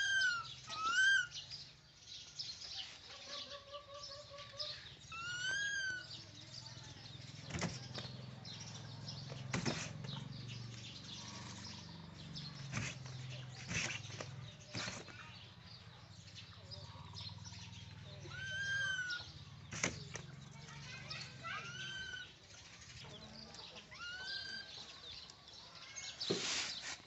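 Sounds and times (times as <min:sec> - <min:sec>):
baby monkey squeal: 0:00.0 - 0:01.3, 0:05.1 - 0:06.2, 0:18.2 - 0:19.4, 0:21.5 - 0:22.3
bamboo basket knocking and rattling: 0:09.4 - 0:10.0.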